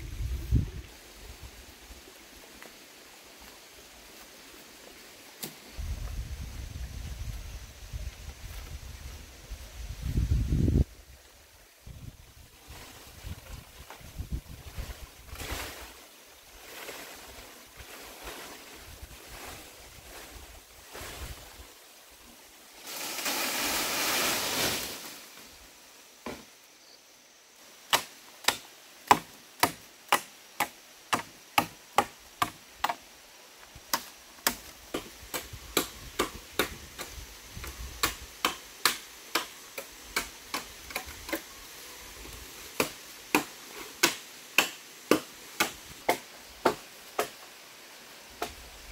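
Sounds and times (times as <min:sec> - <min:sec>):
machete chopping bamboo: 0:27.9 - 0:33.0, 0:33.9 - 0:37.1, 0:38.0 - 0:41.4, 0:42.7 - 0:47.4.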